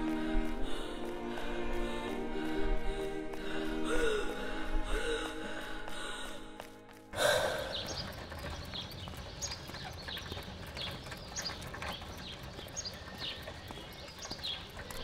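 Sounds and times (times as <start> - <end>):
cart wheels rumbling: 7.2 - 15.0
wheel squeaks: 7.8 - 15.0.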